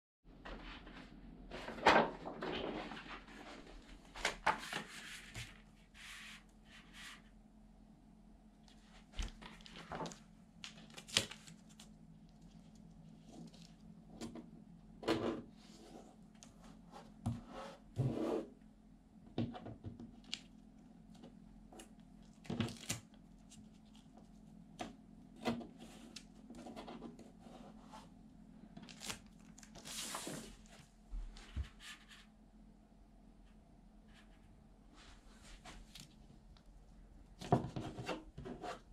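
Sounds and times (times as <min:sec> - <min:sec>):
faint low hum: 0:00.3 - 0:38.9
paper and vinyl rustling: 0:00.4 - 0:07.3, 0:08.7 - 0:14.4, 0:28.7 - 0:32.3, 0:34.1 - 0:36.5.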